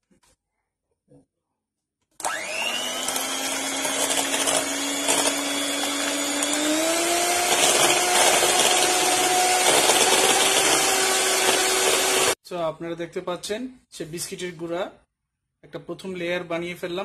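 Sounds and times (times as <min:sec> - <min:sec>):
electric hand mixer whining: 0:02.2 - 0:12.4.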